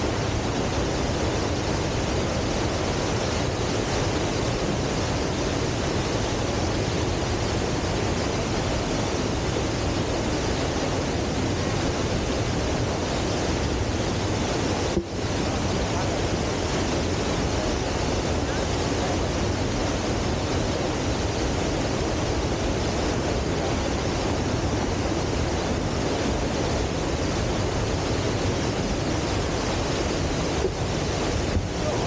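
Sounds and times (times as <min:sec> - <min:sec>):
waterfall roaring: 0:00.0 - 0:32.0.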